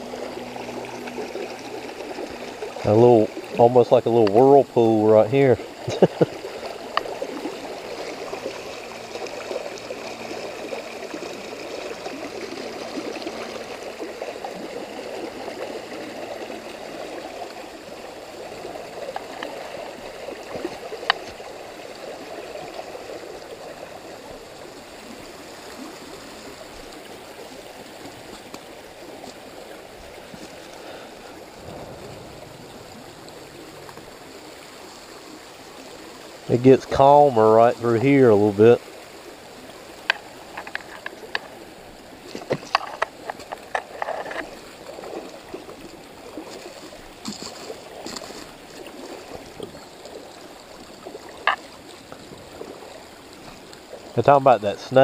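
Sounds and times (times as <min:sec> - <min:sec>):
creek burbling over stones: 0:00.0 - 0:55.0.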